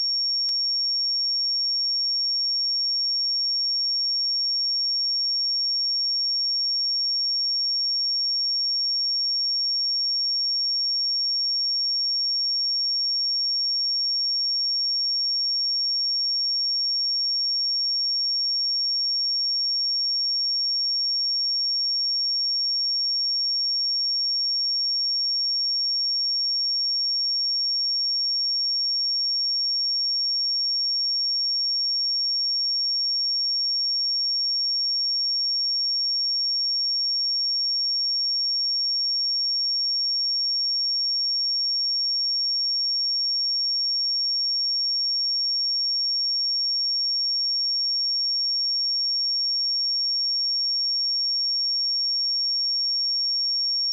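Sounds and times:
high-pitched sine test tone: 0.0s - 3.4s, 37.4s - 53.9s.

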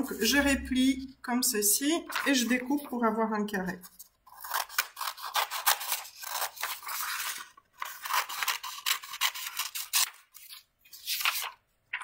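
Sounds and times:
scissors cutting paper: 3.8s - 10.6s.

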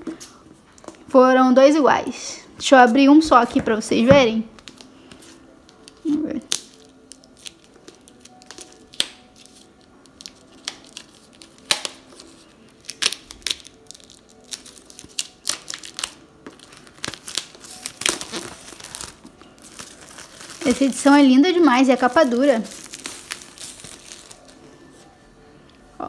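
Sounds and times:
plastic wrap crinkling and tearing: 4.6s - 24.6s.

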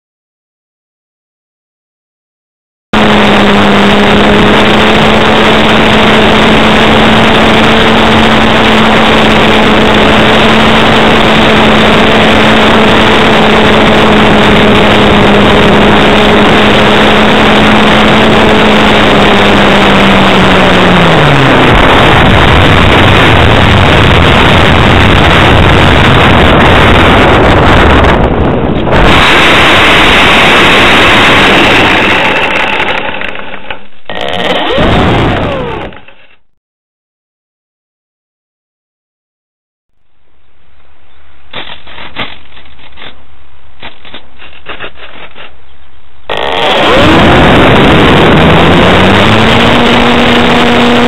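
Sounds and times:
wind rush on microphone: 3.0s - 33.0s, 34.5s - 36.0s, 46.3s - 51.0s
electric motor hum: 3.0s - 36.4s, 46.3s - 51.0s.

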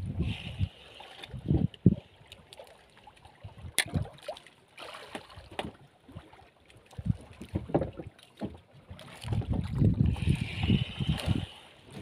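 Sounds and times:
water slapping against boat hull: 3.6s - 12.0s.

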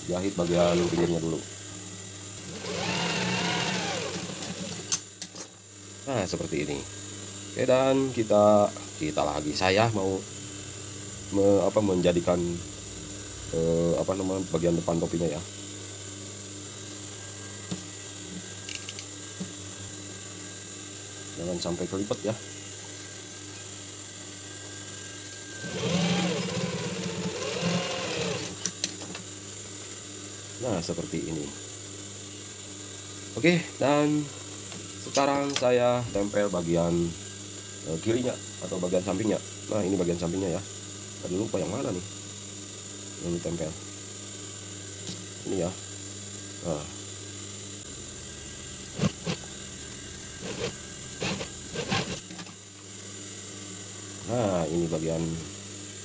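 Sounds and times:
sewing machine motor humming: 0.4s - 1.3s, 2.4s - 5.0s, 25.6s - 28.7s, 48.6s - 52.3s
sewing machine stitching fabric: 2.4s - 5.0s, 25.7s - 28.6s, 50.4s - 52.3s.

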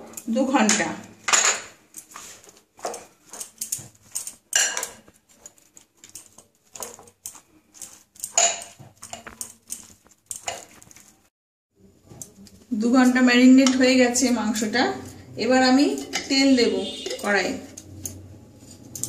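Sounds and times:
metal spoon scraping glass bowl: 1.3s - 11.1s, 15.8s - 19.0s.

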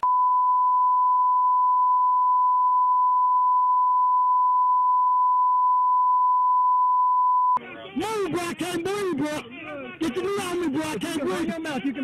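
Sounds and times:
steady censor beep tone: 0.0s - 7.6s.

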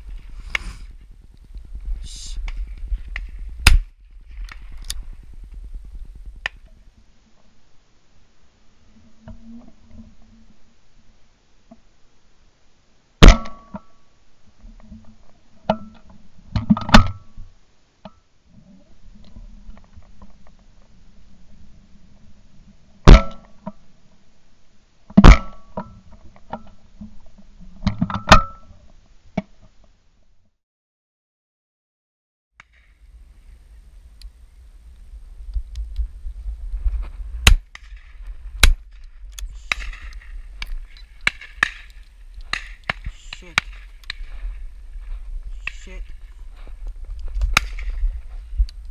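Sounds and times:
wind rumble on microphone: 0.0s - 7.1s, 32.9s - 48.9s.

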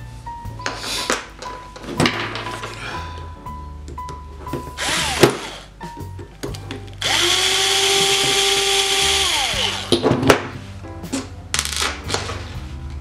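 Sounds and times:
cordless drill driving a screw: 4.8s - 5.7s, 7.0s - 10.0s.

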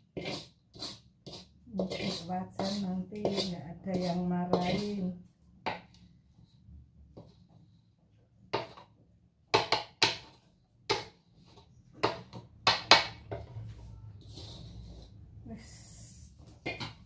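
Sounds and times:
metal wok knocking and clanking: 9.5s - 11.1s.

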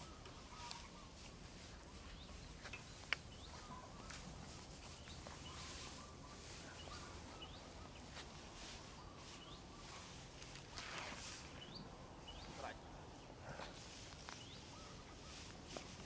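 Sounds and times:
birds chirping: 0.0s - 16.0s
rustle of dry straw: 0.0s - 16.0s.

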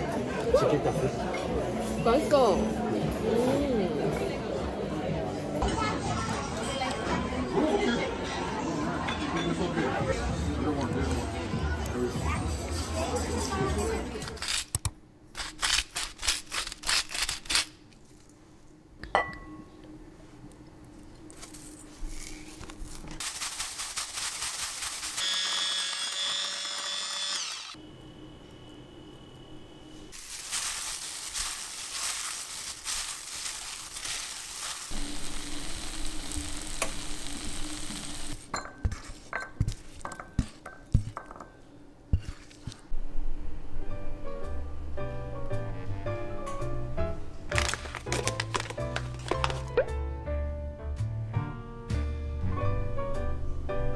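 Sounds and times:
steady sizzling: 23.2s - 38.5s.

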